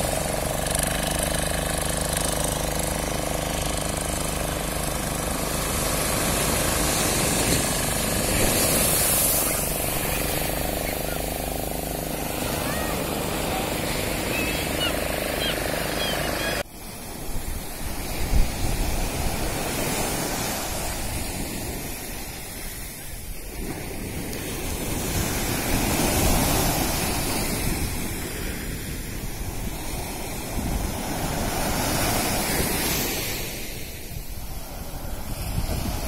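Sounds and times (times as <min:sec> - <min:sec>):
sea surf breaking on beach: 0:00.0 - 0:36.0
wind buffeting microphone: 0:17.2 - 0:36.0.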